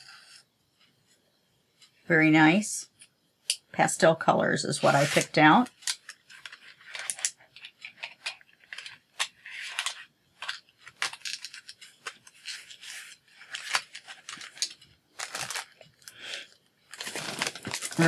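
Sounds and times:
packaging clicks taps and rustles: 5.7s - 18.0s.

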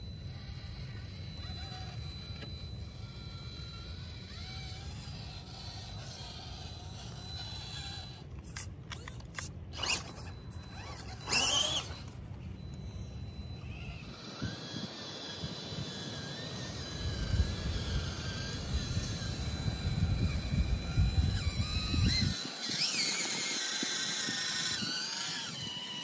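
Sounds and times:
toy car electric motor whining: 0.0s - 26.0s.

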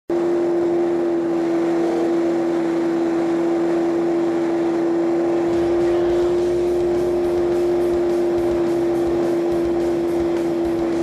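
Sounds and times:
motorcycle engine cruising: 0.1s - 11.0s
wind and road noise: 0.1s - 11.0s
deep rumble: 0.8s - 11.0s.

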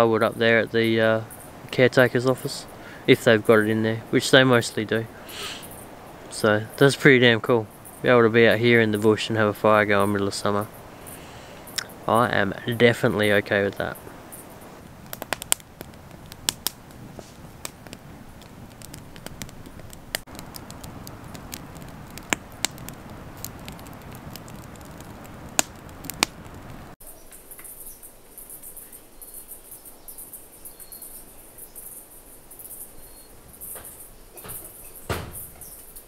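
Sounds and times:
insects chirping: 0.0s - 16.6s, 27.0s - 36.0s
campfire crackling: 0.0s - 36.0s.

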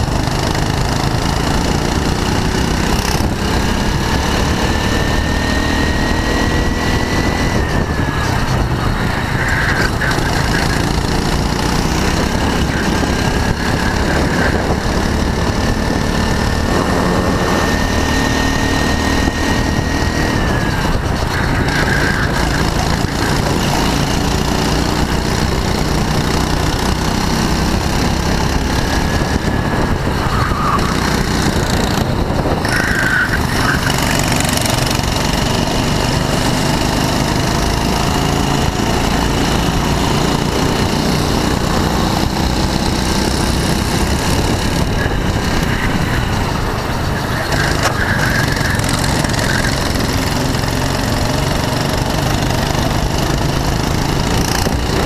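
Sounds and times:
go-kart engine racing: 0.0s - 55.0s
other kart engines: 0.0s - 55.0s.

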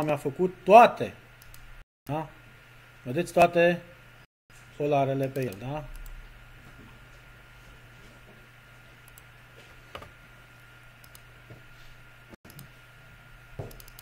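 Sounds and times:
low electrical hum: 0.0s - 14.0s
computer mouse clicks: 1.4s - 1.7s, 5.3s - 6.2s, 9.0s - 9.3s, 11.0s - 11.3s, 12.5s - 12.7s, 13.7s - 14.0s.

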